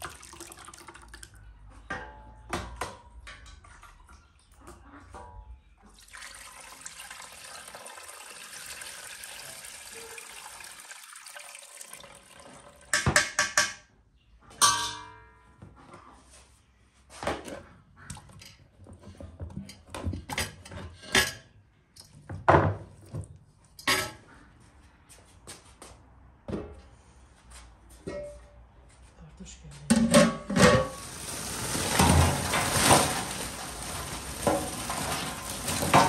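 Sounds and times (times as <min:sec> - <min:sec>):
broth splashing into pot: 0:30.8 - 0:36.0.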